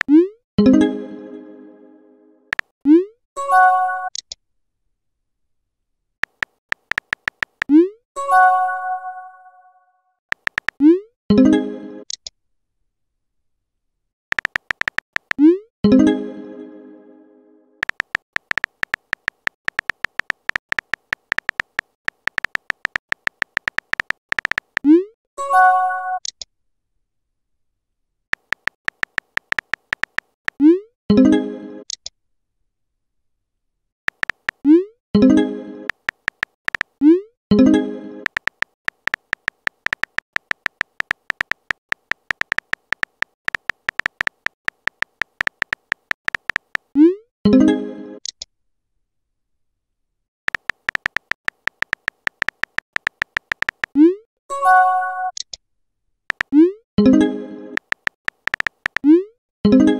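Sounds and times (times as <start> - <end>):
phone keyboard typing clicks: 6.2 - 7.8, 10.3 - 10.9, 14.3 - 15.5, 17.8 - 25.0, 28.4 - 30.6, 34.1 - 34.7, 35.9 - 37.0, 38.2 - 47.0, 50.5 - 54.0, 56.3 - 56.6, 57.8 - 59.2.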